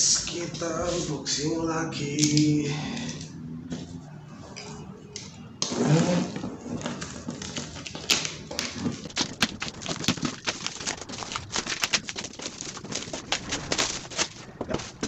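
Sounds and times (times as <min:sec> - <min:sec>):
plastic crinkling: 0:05.6 - 0:15.0
plastic wrapping tearing: 0:05.6 - 0:15.0.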